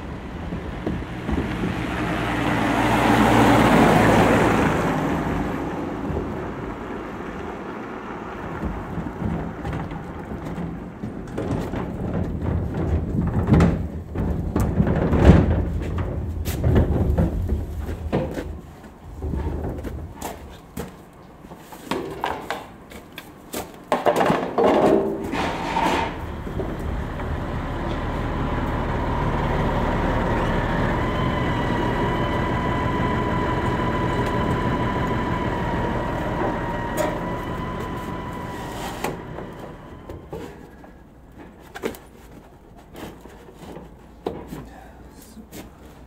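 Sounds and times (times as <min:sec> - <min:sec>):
knocks and rattles: 0:00.0 - 0:21.1, 0:21.8 - 0:44.6
tractor engine whining: 0:00.0 - 0:21.3, 0:25.0 - 0:42.1.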